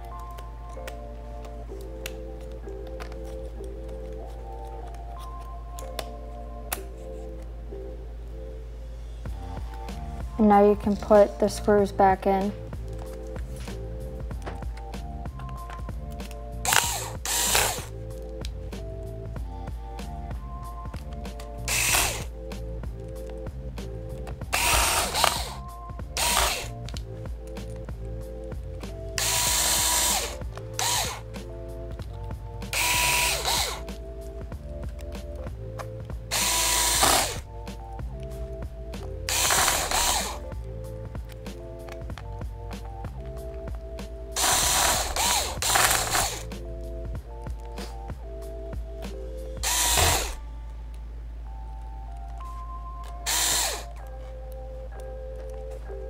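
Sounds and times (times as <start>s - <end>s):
soft background music: 0.0s - 56.0s
electric screwdriver whirring: 16.2s - 17.9s, 21.6s - 22.3s, 24.5s - 27.0s, 29.2s - 31.3s, 32.7s - 33.9s, 36.3s - 37.4s, 39.3s - 40.5s, 44.4s - 46.5s, 49.6s - 50.4s, 53.2s - 54.1s.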